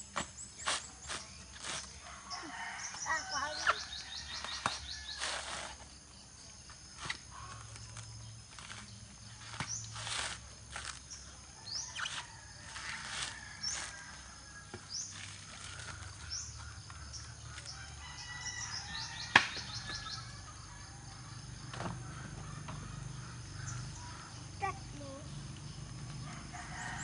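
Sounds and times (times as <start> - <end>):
bird chirping: 0.0 - 10.0, 14.7 - 26.2
coconut husk tearing: 8.5 - 11.1, 15.1 - 16.2
sharp crack: 19.3 - 19.7.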